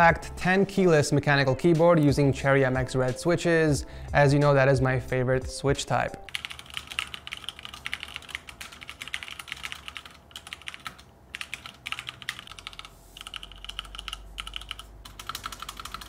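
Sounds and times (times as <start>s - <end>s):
mechanical keyboard typing: 6.3s - 16.0s.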